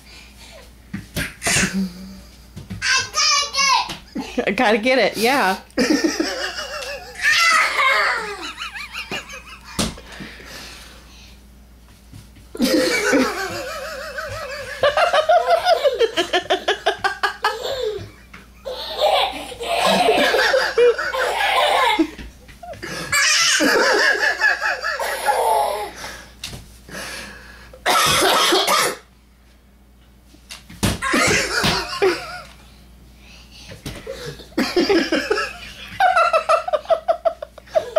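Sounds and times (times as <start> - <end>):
hearty laughter: 5.8 - 7.2, 12.6 - 18.1, 19.0 - 22.2, 34.1 - 37.9
cough: 27.8 - 29.1.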